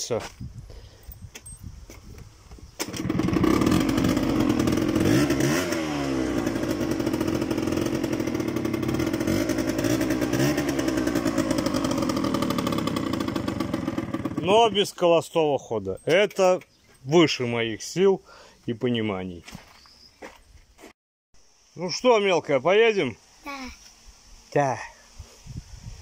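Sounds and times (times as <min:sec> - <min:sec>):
scooter engine revving: 0:02.8 - 0:14.7.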